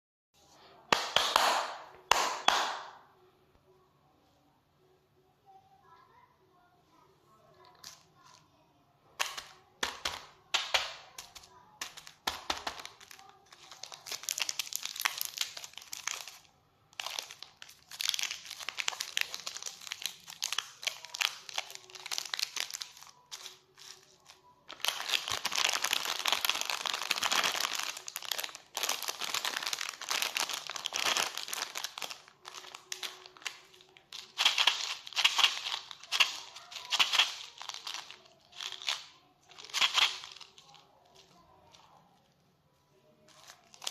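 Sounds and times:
plastic wrappers crinkling: 9.2 - 42.4, 43.2 - 43.9.

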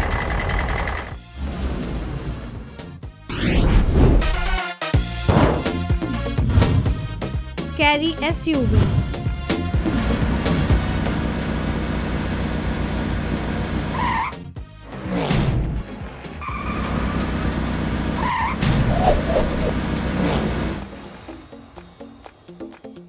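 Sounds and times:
cartoon car engine running: 0.0 - 2.4, 8.2 - 14.4
cartoon tire squeals: 13.9 - 14.4, 16.4 - 16.9, 18.2 - 19.8.

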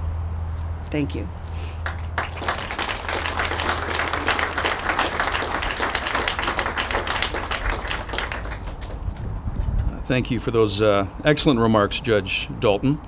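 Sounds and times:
audience applauding: 1.8 - 9.1.

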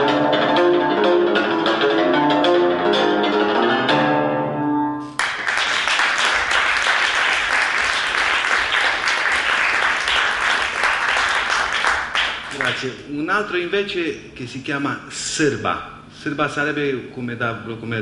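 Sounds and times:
audience applause: 5.1 - 12.9.

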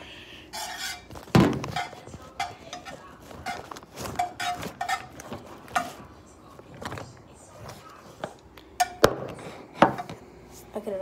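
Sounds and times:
utensils clinking against a pan: 0.5 - 6.1.

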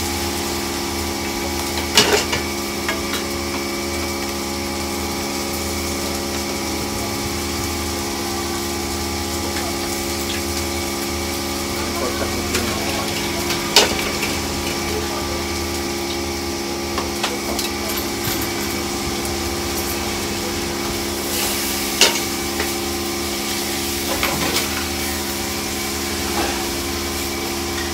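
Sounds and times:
kitchen machine hum: 0.0 - 27.9
wire strainer clanking on wok: 12.4 - 15.0.

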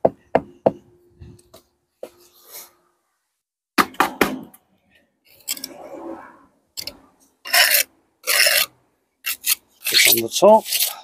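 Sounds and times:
trowel scraping mortar: 6.8 - 11.0.

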